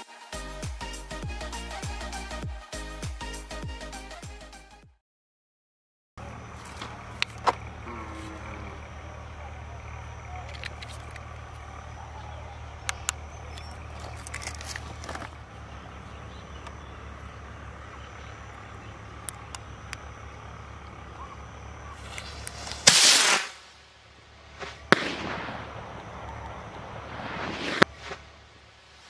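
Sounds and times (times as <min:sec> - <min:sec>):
small clicks: 0:10.4 - 0:11.7, 0:12.8 - 0:15.4
sharp crack: 0:21.8 - 0:29.0
firework rocket rushing hiss: 0:21.9 - 0:29.0.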